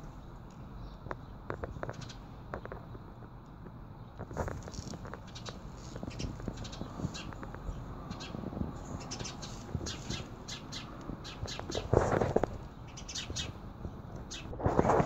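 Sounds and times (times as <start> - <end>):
birds chirping: 0.0 - 3.1, 3.8 - 15.0
rustle: 4.1 - 15.0.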